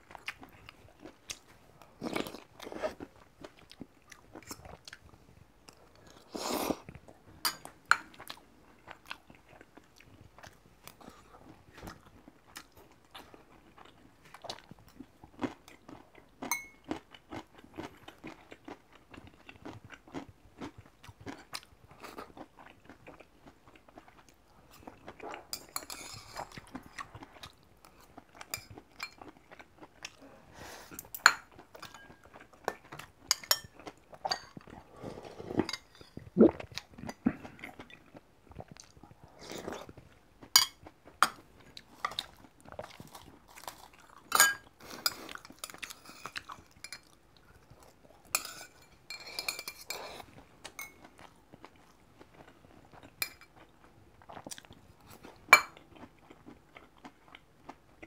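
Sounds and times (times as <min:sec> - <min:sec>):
chewing and crunching food: 0:00.0 - 0:58.0
utensils clinking on metal bowl: 0:44.3 - 0:47.1.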